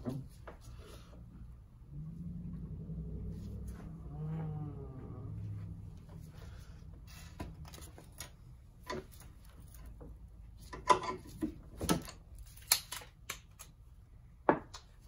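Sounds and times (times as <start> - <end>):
hand tools and metal parts clicking: 10.6 - 13.7.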